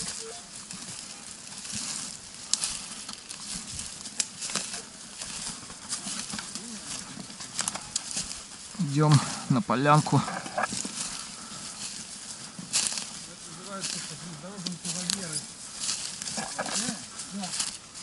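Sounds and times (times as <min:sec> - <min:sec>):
footsteps rustling dry leaves: 0:00.0 - 0:18.0
twigs snapping: 0:00.9 - 0:08.7.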